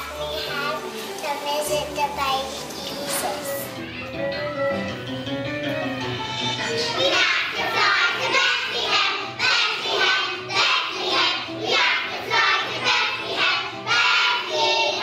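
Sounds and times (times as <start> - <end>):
children singing in unison: 6.8 - 15.0.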